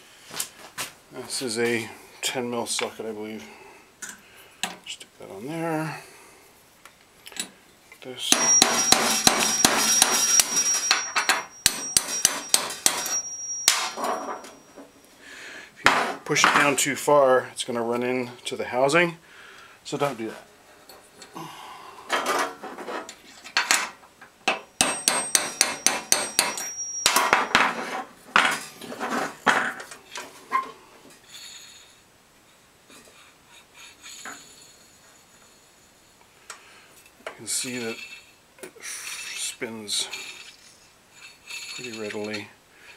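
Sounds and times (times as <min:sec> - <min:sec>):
knocks and clatter of handling: 0:08.4 - 0:15.0, 0:22.1 - 0:30.7
hammer tapping on metal socket: 0:24.8 - 0:27.5.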